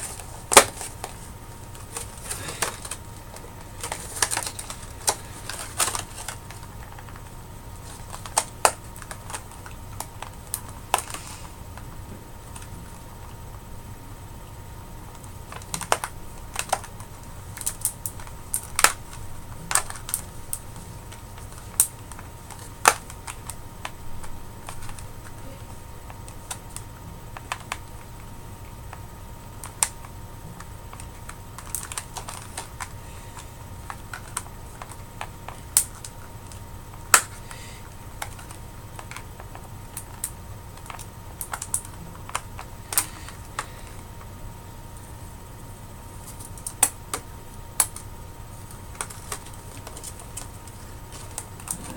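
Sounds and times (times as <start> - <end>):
plastic packaging clicking: 0.0 - 11.9, 15.1 - 44.3, 46.2 - 51.9
faint steady hum: 0.0 - 51.9.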